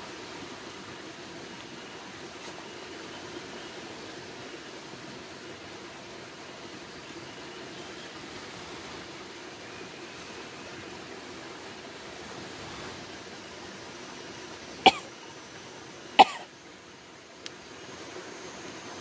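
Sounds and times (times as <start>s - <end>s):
steady hiss: 0.0s - 19.0s
person coughing: 14.9s - 15.1s, 16.2s - 16.5s
faint click: 17.4s - 17.6s.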